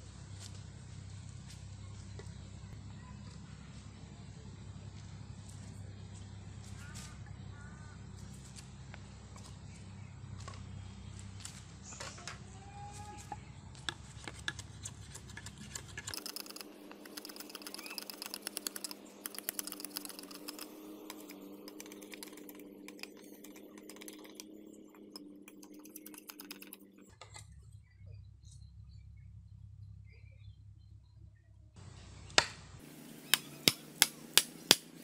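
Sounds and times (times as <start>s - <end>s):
blade scraping and tapping bamboo: 13.2s - 27.4s, 32.3s - 35.0s.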